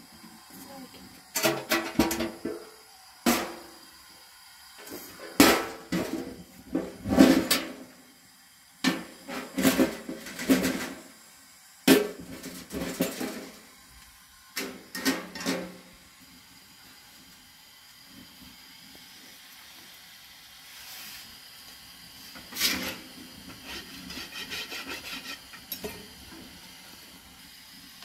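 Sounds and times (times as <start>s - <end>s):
metal blade scraping a griddle: 22.4s - 26.1s.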